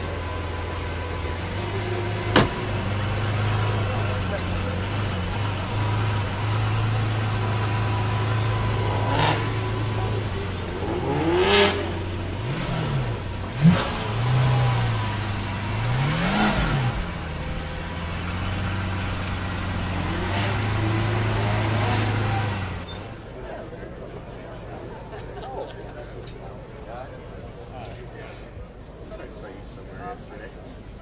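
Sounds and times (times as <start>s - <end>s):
car engine revving: 0.0s - 23.1s.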